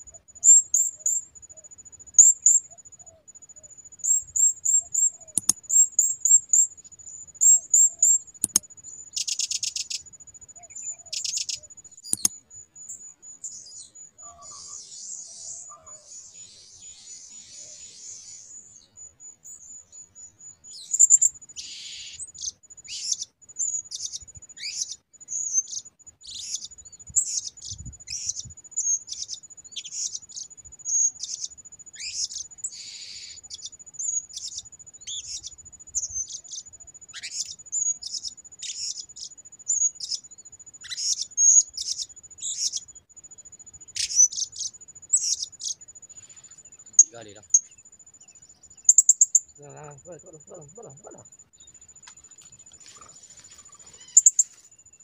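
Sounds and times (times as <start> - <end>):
parrots chirping: 5.2 - 6.1, 7.4 - 8.6, 11.1 - 12.3, 52.9 - 54.5.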